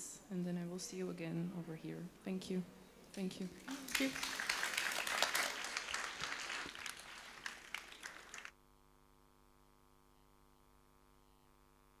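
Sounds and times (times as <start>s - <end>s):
faint electrical hum: 0.0s - 12.0s
audience applause: 3.6s - 8.5s.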